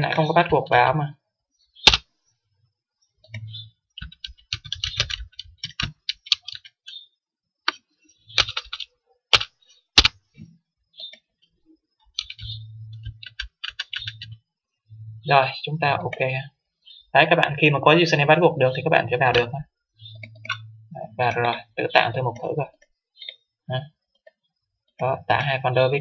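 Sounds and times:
computer keyboard typing: 0:03.2 - 0:07.0, 0:08.4 - 0:10.2, 0:12.1 - 0:14.4, 0:20.2 - 0:20.6.

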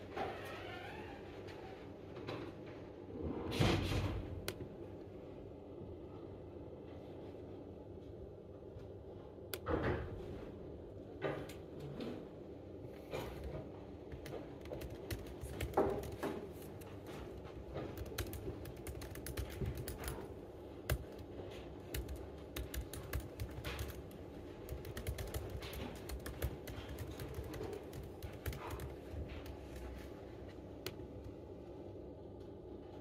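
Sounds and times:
laptop keyboard typing: 0:13.2 - 0:30.2.

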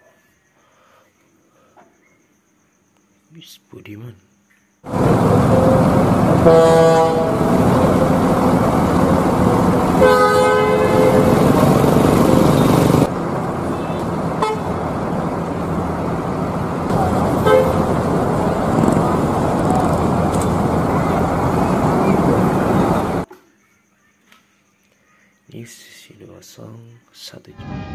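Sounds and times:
bus horn blasts: 0:04.9 - 0:15.0, 0:16.9 - 0:23.2
bus engines running: 0:04.9 - 0:23.3.

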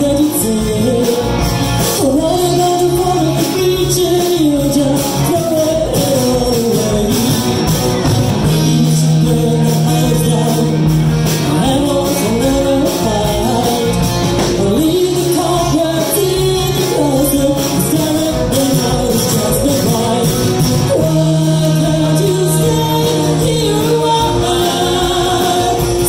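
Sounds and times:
woman singing: 0:00.0 - 0:07.6, 0:08.4 - 0:26.0
band with guitar and drums: 0:00.0 - 0:26.0.

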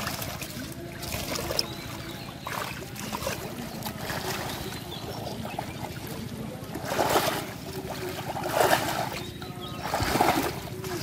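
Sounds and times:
water sloshing and splashing: 0:00.0 - 0:11.0.

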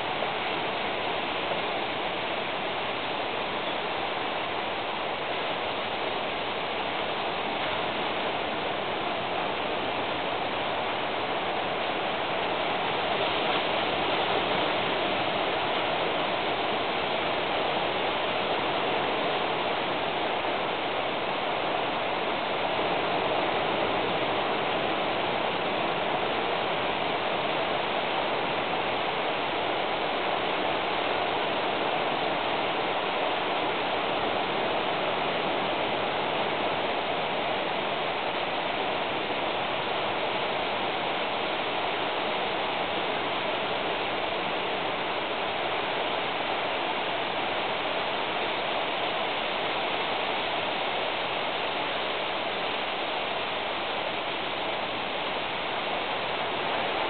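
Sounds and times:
steady rushing noise: 0:00.0 - 0:57.0.

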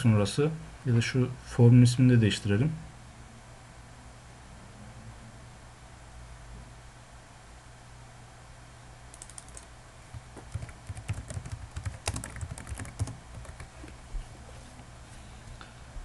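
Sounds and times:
low steady hum: 0:00.0 - 0:16.0
typing on computer keyboard: 0:09.1 - 0:09.7, 0:10.4 - 0:13.7.

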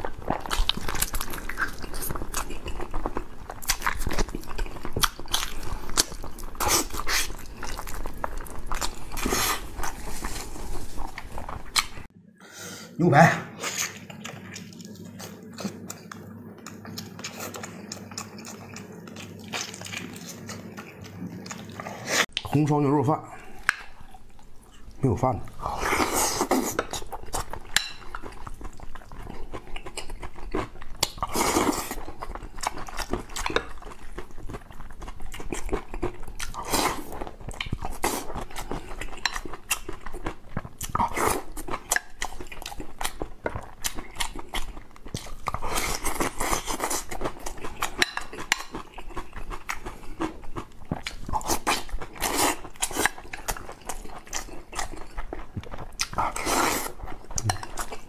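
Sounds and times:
wet chewing: 0:00.0 - 0:12.1, 0:13.6 - 0:22.6, 0:23.4 - 0:58.0
slurping: 0:55.9 - 0:58.0.

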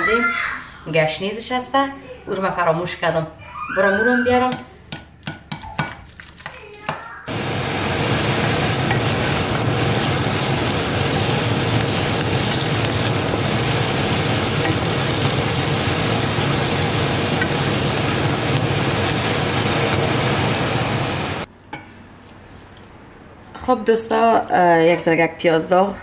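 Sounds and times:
onions sizzling in a frying pan: 0:07.3 - 0:21.5
steady whirring hum: 0:07.3 - 0:21.7.

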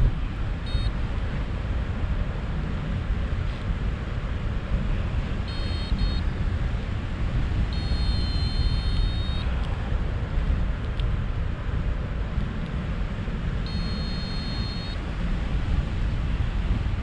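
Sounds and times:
airflow buffeting microphone: 0:00.0 - 0:17.0
variometer electronic beeps: 0:00.6 - 0:01.0, 0:05.5 - 0:06.3, 0:07.7 - 0:09.5, 0:13.6 - 0:15.0.

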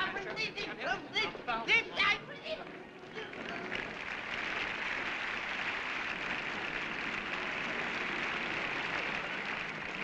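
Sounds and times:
audience applause: 0:03.0 - 0:10.0.

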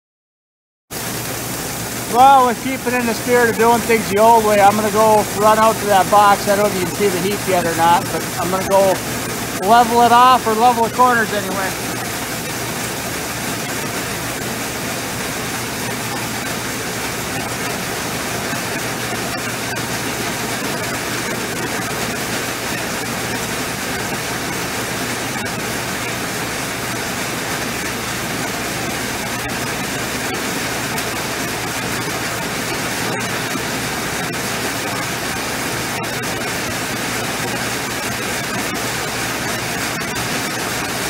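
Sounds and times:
grain pouring into wagon: 0:01.0 - 0:12.7
tractor running: 0:01.8 - 0:21.1
grain auger running: 0:01.9 - 0:37.3.

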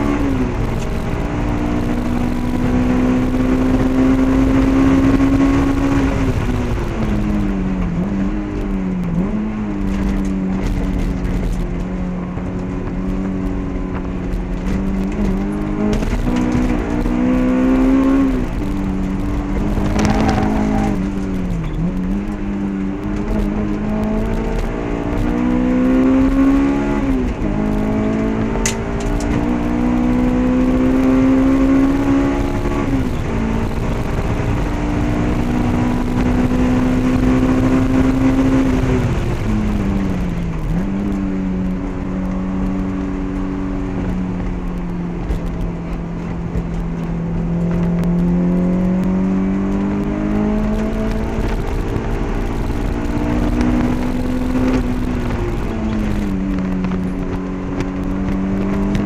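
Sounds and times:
car engine revving in cabin: 0:00.0 - 0:59.0.

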